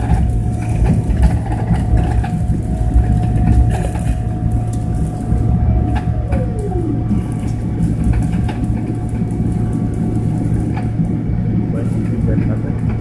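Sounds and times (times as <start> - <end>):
aircraft cabin rumble: 0.0 - 13.0
constant whine: 0.0 - 13.0
tone gliding down in pitch: 5.4 - 9.7.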